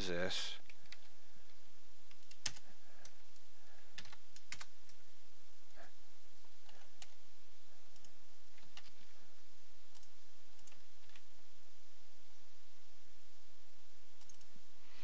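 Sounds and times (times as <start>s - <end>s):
steady low background noise: 0.0s - 15.0s
mouse and keyboard clicks: 14.2s - 14.5s.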